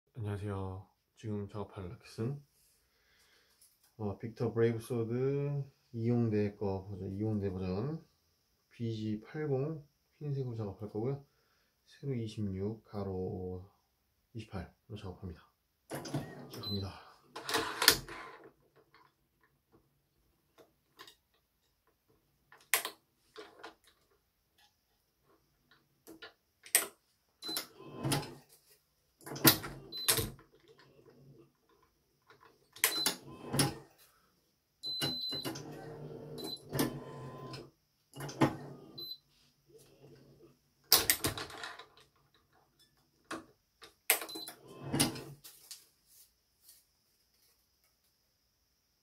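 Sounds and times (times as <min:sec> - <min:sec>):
string rustling: 0:45.4 - 0:47.7.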